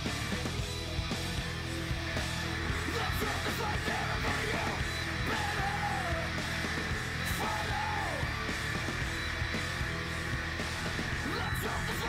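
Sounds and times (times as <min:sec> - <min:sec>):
rock music with guitar: 0:00.0 - 0:12.0
person singing: 0:02.8 - 0:06.3.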